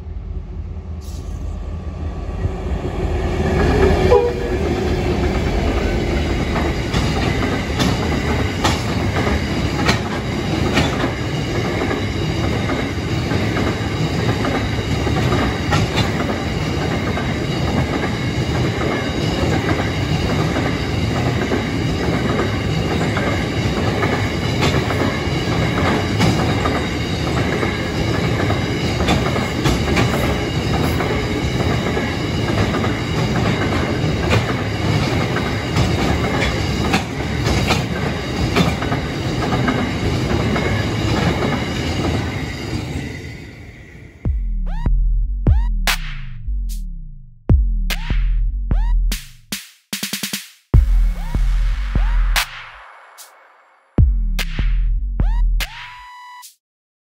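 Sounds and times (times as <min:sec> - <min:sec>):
train wheels rumbling on rail: 0:00.0 - 0:44.3.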